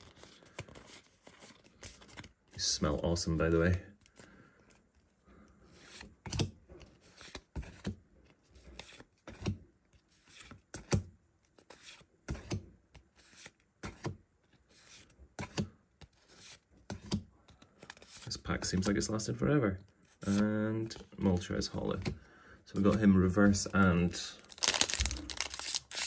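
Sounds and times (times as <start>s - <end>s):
soft card rubbing: 11.5s - 19.0s.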